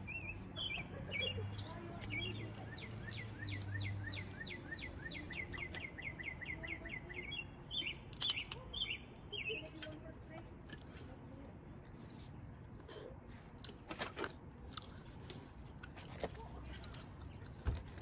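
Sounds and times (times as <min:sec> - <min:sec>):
songbird singing: 0:00.0 - 0:10.9.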